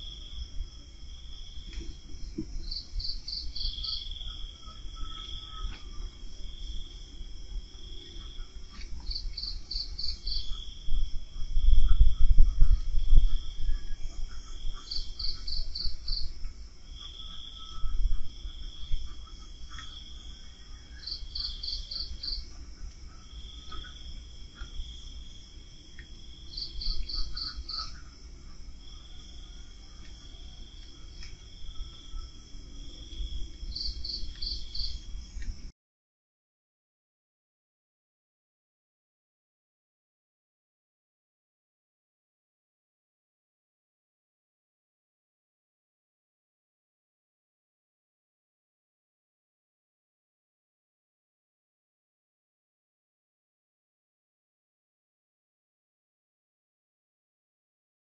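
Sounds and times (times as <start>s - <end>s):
night insects calling: 0.0s - 35.7s.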